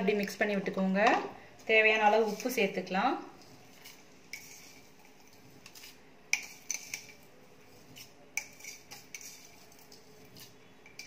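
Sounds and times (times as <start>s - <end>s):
spoon clinking against container: 8.0s - 11.0s.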